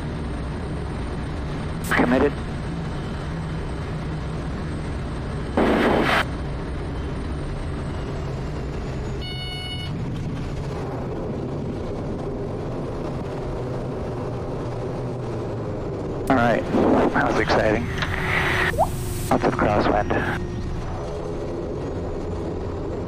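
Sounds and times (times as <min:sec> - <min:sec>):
turboprop engine and propeller: 0:00.0 - 0:23.0
loud burst of noise: 0:05.6 - 0:06.3.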